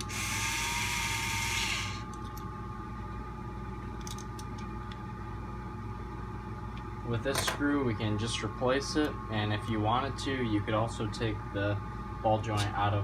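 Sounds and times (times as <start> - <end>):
electric screwdriver whining: 0.0 - 2.1.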